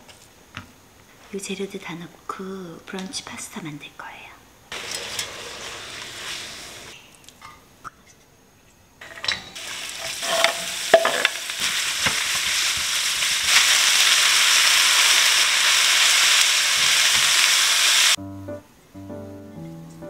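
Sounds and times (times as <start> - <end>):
food sizzling in a hot pan: 4.7 - 7.0, 9.0 - 18.2.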